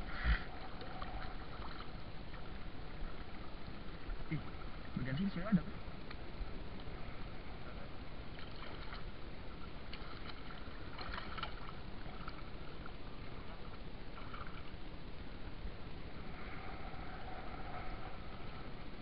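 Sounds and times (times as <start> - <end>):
sea water sloshing: 0.0 - 19.0
small splashes and drips: 0.7 - 3.4, 8.3 - 9.1, 9.9 - 14.8.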